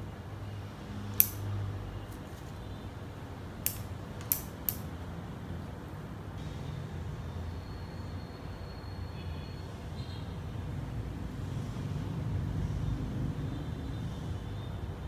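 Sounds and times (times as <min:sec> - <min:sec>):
pruning shears snipping branches: 0:01.2 - 0:01.5.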